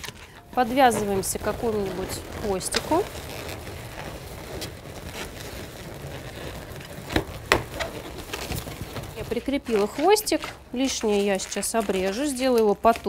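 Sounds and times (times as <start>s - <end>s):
rubber balloon squeaking: 0.0s - 12.1s
balloons rubbing: 0.0s - 13.0s.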